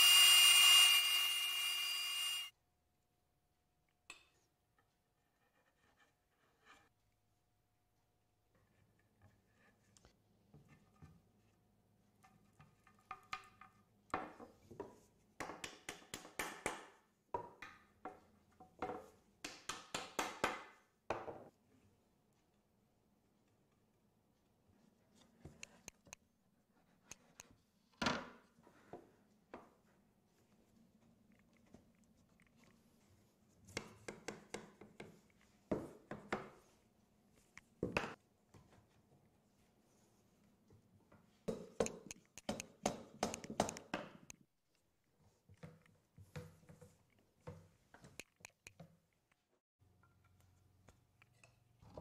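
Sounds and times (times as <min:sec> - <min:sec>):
rubber mallet tapping wood: 0:41.5 - 0:44.1.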